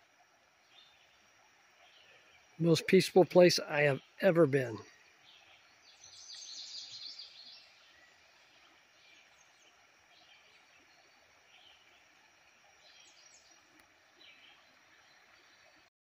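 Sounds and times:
steady low hiss: 0.0 - 15.9
bird chirps: 3.8 - 10.7.

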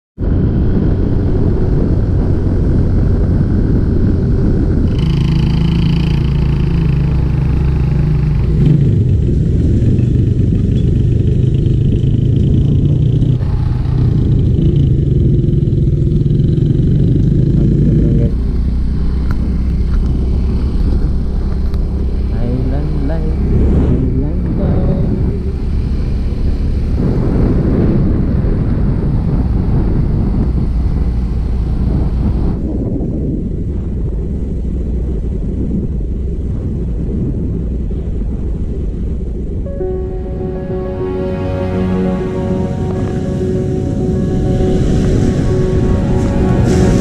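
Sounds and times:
wind and road noise: 0.2 - 47.0
scooter engine running: 4.8 - 27.4.

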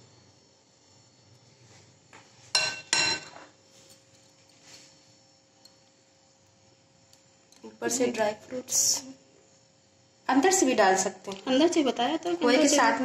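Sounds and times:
tableware clinking: 2.5 - 4.3.

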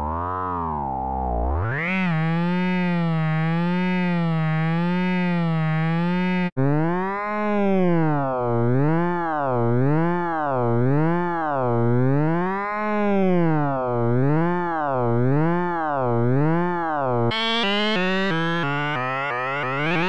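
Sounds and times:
buzzy synthesized tone: 17.3 - 20.0.

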